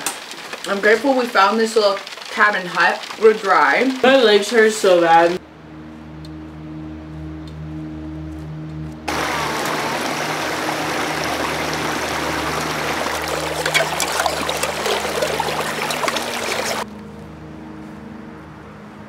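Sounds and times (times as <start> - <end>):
stream trickling over rocks: 0.0 - 5.2, 9.1 - 16.8
container dipping into water: 9.6 - 16.8.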